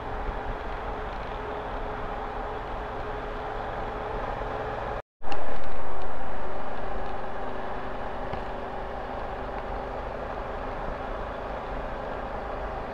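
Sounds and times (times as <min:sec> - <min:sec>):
wind noise: 0:05.2 - 0:12.9.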